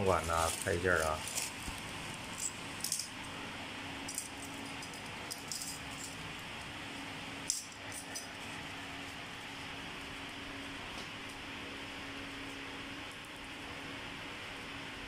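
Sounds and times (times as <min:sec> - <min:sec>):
steady background hum: 0:00.0 - 0:15.0
metallic clinks and rattles: 0:02.3 - 0:03.1, 0:04.0 - 0:06.2, 0:07.5 - 0:08.4.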